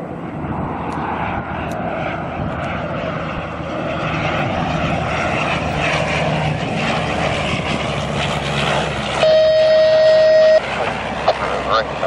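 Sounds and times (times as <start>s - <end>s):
airliner engine roar: 0.0s - 12.0s
loud steady beep: 9.2s - 10.7s.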